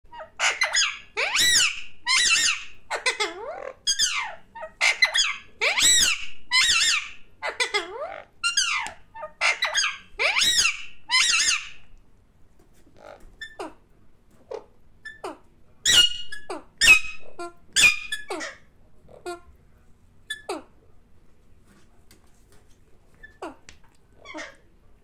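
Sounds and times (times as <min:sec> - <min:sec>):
parakeet calling: 0:00.1 - 0:11.9, 0:15.0 - 0:19.4.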